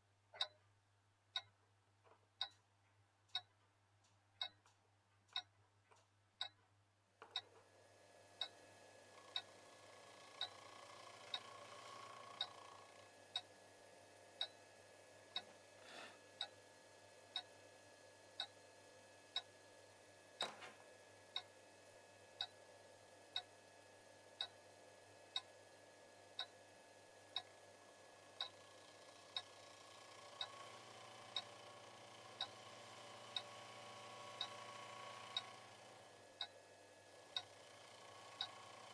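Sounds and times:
clock ticking: 0.4s - 0.6s, 1.3s - 1.6s, 2.4s - 2.6s, 3.3s - 3.5s, 4.4s - 4.6s, 5.3s - 5.5s, 6.4s - 6.6s, 10.4s - 10.6s, 29.3s - 29.5s, 32.4s - 32.7s.

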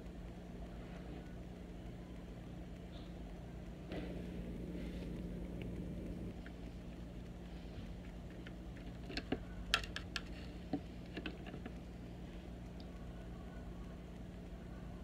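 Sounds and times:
steady low hum: 0.0s - 15.0s
brush tapping plastic palette: 8.1s - 11.8s.

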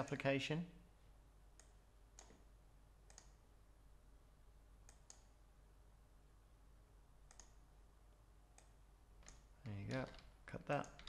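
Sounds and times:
computer mouse clicks: 1.6s - 2.4s, 3.0s - 3.4s, 4.8s - 5.4s, 7.2s - 7.6s, 8.5s - 11.0s.

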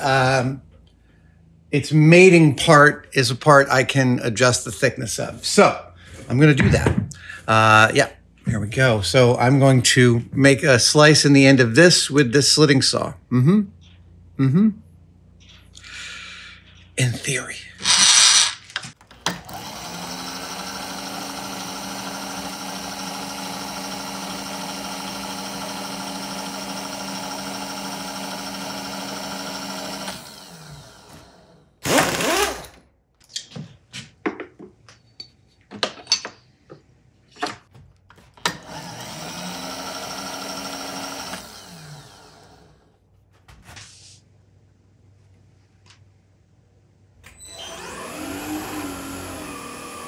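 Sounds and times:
milling machine spindle motor: 19.3s - 32.8s, 38.4s - 42.8s, 47.4s - 50.0s
handling clicks and knocks at vise: 33.2s - 38.6s.

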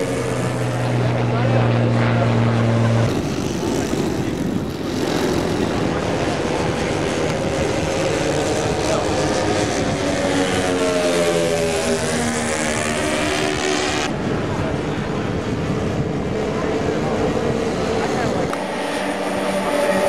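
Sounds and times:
model aircraft engines running: 0.0s - 20.0s.

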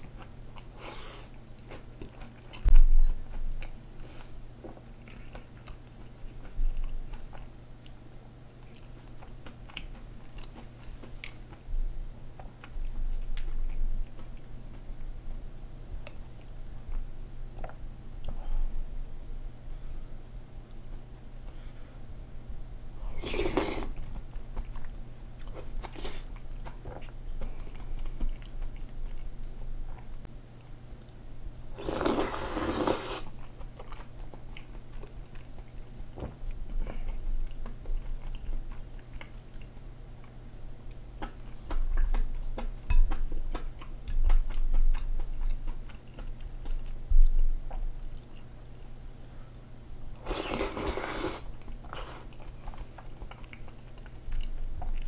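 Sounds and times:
wet chewing clicks: 19.2s - 21.4s, 33.0s - 49.7s, 50.3s - 55.0s
slurping noodles and soup: 23.2s - 24.0s, 31.8s - 33.3s, 50.2s - 52.3s.

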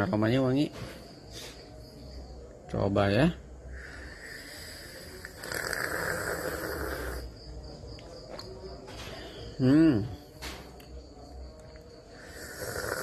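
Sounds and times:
person slurping coffee: 4.2s - 7.2s.

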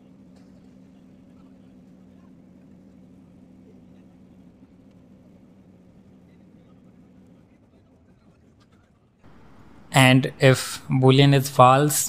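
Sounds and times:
faint background hiss: 9.3s - 12.0s
low electrical hum: 9.3s - 12.0s.

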